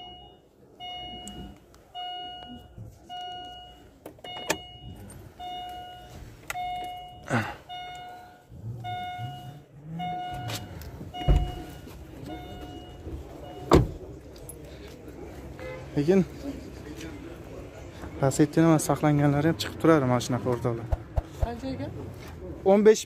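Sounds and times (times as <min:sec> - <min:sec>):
car warning chime beeping: 0:00.0 - 0:14.7
knocks and thuds in car interior: 0:11.0 - 0:11.8.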